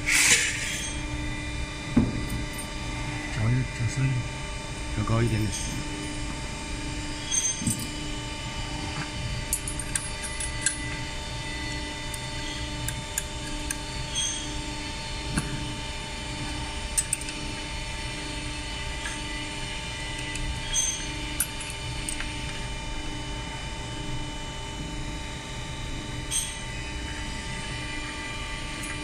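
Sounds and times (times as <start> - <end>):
machine hum with low drone: 0.0 - 29.0
metal parts clicking and tapping: 9.5 - 11.0, 16.5 - 17.4.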